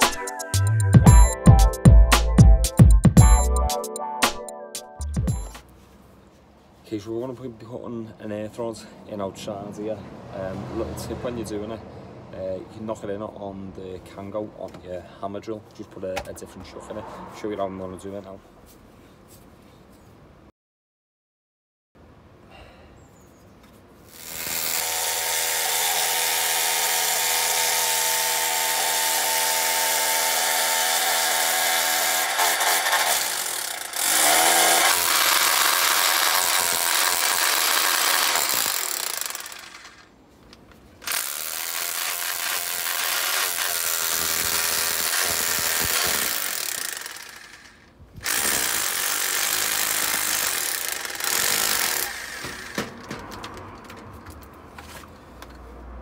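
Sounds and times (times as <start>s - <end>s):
hammer drill hammering metal rod: 24.2s - 40.0s, 41.1s - 53.2s.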